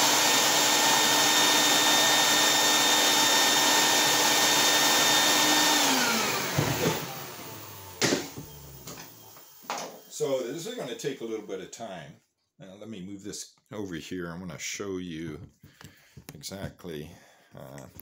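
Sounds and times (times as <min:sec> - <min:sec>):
shop vacuum running: 0:00.0 - 0:11.8.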